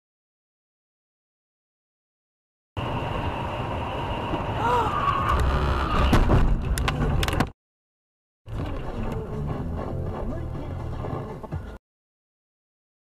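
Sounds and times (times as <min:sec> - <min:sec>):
road and engine noise: 0:02.8 - 0:07.6, 0:08.5 - 0:11.8.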